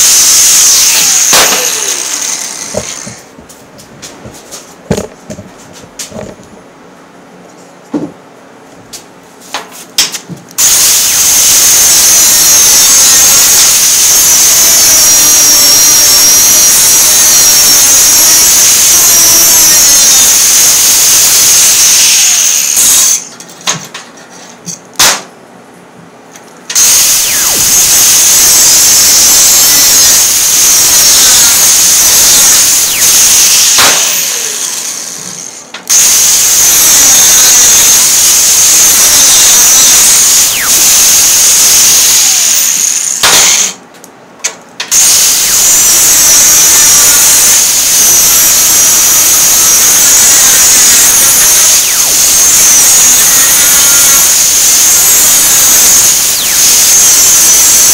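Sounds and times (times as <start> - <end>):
angle grinder grinding steel: 0.0 - 3.4, 10.6 - 23.4, 26.7 - 43.8, 44.9 - 57.9.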